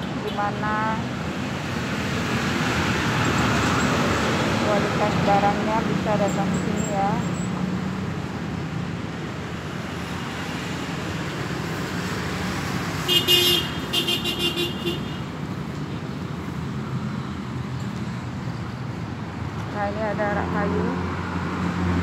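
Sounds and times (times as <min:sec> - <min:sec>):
road traffic passing: 0:00.0 - 0:22.0
vehicle horn tooting: 0:13.1 - 0:15.3.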